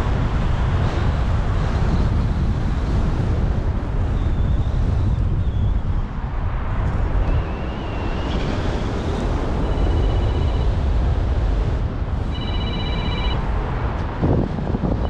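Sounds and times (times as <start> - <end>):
wind buffeting microphone: 0.0 - 15.0
mobile phone ringing: 9.6 - 10.8, 12.3 - 13.4.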